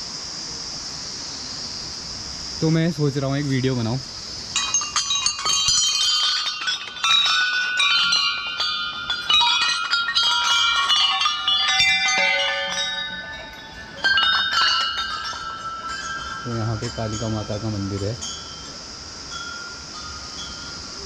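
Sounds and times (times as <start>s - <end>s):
brass bells ringing: 4.5s - 21.0s.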